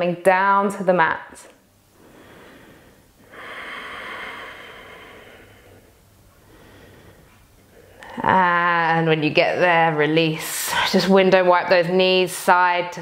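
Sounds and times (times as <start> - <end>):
woman exhaling slowly: 2.0 - 8.4.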